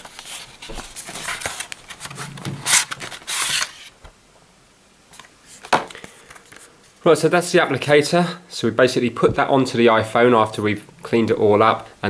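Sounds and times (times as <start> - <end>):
packaging rustling and sliding: 0.0 - 4.0.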